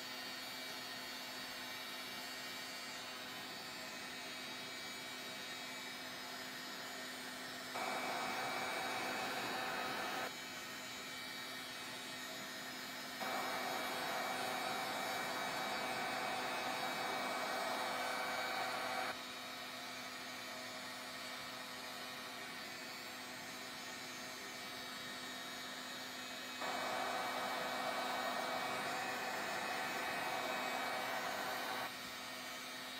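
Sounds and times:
steady hum: 7.8 - 10.3, 13.2 - 19.2, 26.6 - 31.9
heat gun blowing: 7.8 - 11.2, 11.8 - 19.2, 26.5 - 32.0.

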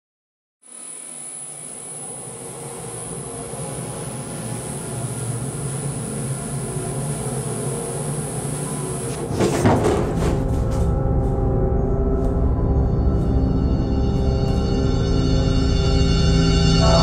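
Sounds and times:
elevator car rumbling drone: 0.7 - 17.0
elevator clanking and rattling: 9.0 - 11.4.

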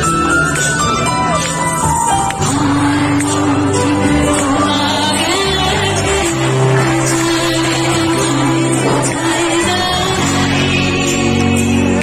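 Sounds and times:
live band music: 0.0 - 12.0.

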